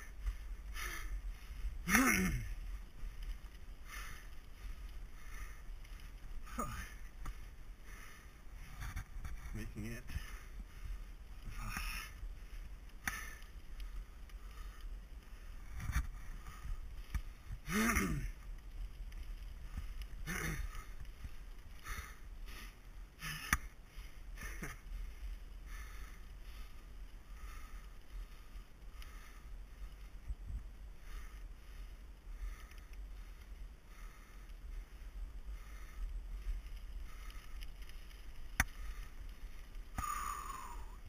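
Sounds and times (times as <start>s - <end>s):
person breathing hard: 0.0s - 9.5s, 10.1s - 18.4s, 19.4s - 41.0s
person grunting: 1.8s - 2.5s, 17.6s - 18.3s.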